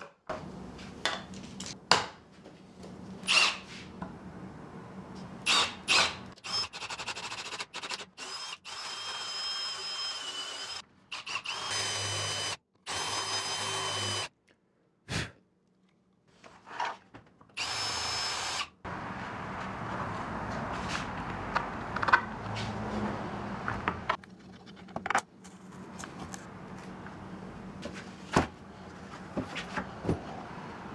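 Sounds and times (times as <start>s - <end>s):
power drill whining: 3.2s - 3.6s, 5.5s - 14.3s, 17.6s - 18.7s.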